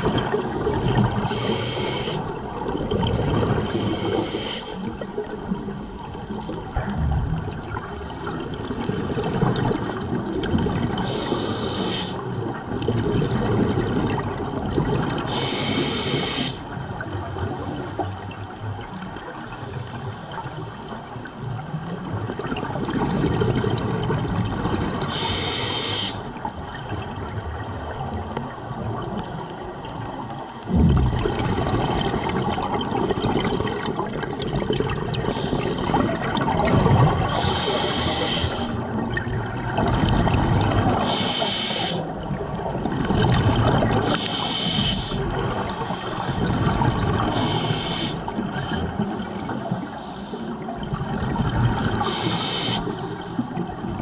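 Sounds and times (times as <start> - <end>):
exhaust bubbles gurgling: 0.0 - 19.1, 21.6 - 25.7, 28.5 - 49.7, 50.5 - 54.0
regulator inhale hiss: 0.6 - 2.6, 3.6 - 5.0, 11.0 - 12.3, 15.3 - 16.7, 25.1 - 26.4, 27.6 - 28.7, 35.2 - 36.4, 37.3 - 38.8, 40.9 - 42.2, 43.8 - 50.7, 51.8 - 53.6.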